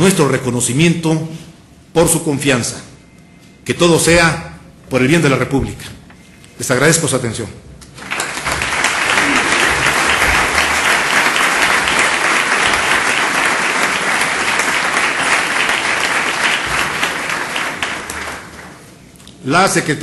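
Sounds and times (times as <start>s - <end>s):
audience applause: 8.0s - 18.9s.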